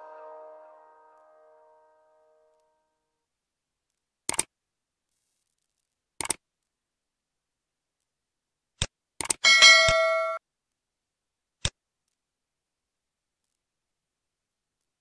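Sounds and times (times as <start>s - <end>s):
bright ringing chime: 0.0s - 2.5s, 9.5s - 10.4s
computer mouse clicks: 4.3s - 4.5s, 6.2s - 6.4s.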